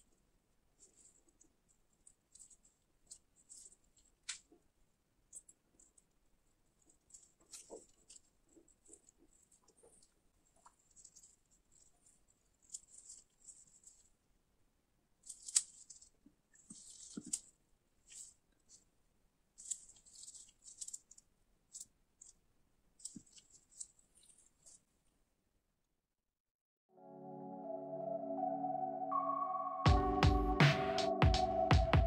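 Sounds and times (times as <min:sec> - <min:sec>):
nitrile gloves crinkling: 0:00.0 - 0:14.4, 0:15.1 - 0:25.3.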